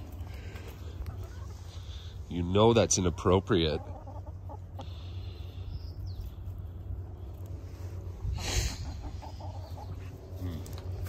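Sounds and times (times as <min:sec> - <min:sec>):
hens making soft sounds: 0:00.0 - 0:11.0
low steady rumble: 0:00.0 - 0:11.0
rustle: 0:10.0 - 0:11.0.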